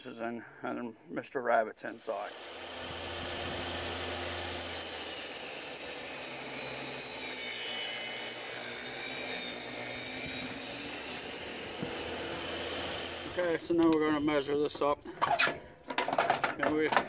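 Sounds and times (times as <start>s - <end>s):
plywood scraping on metal: 15.1s - 17.0s.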